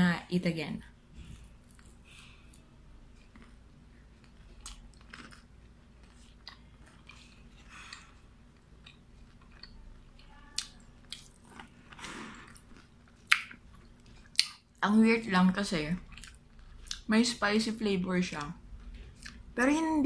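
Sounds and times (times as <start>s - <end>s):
chewing crunchy fried chicken: 1.5s - 14.8s, 15.9s - 17.1s.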